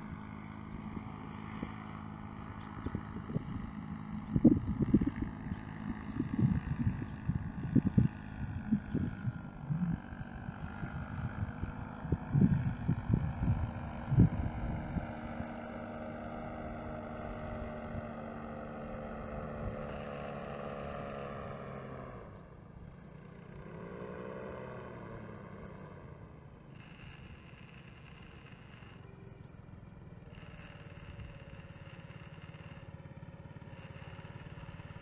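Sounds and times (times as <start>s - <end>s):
paramotor engine droning overhead: 0.0s - 35.0s
wind buffeting microphone: 0.7s - 15.6s.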